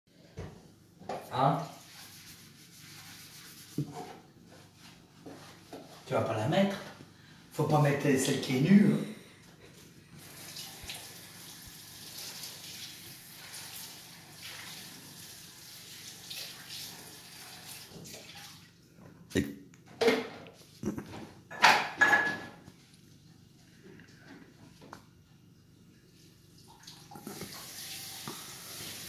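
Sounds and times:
tap water running into sink: 10.2s - 18.6s, 26.6s - 29.0s
splashing and clattering in sink: 17.7s - 18.7s.

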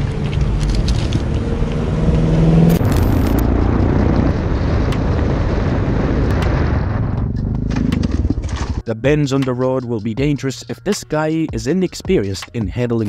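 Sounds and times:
motorcycle riding with wind noise: 0.0s - 8.8s.

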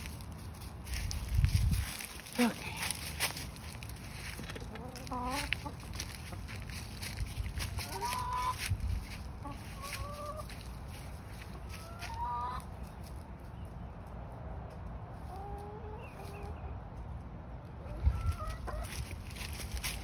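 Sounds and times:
drawn-out chicken calls: 0.0s - 13.8s, 14.8s - 20.0s
chickens clucking: 0.0s - 20.0s.

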